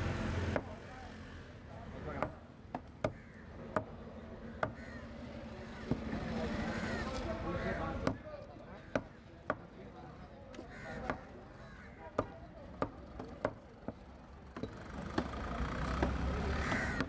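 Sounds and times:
knife chopping fish on wood: 11.0s - 11.3s.

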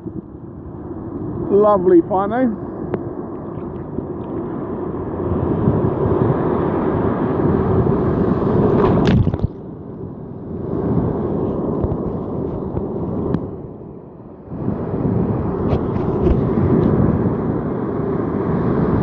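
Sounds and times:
ocean surf washing: 0.0s - 19.0s
sharp water splash: 8.5s - 9.6s.

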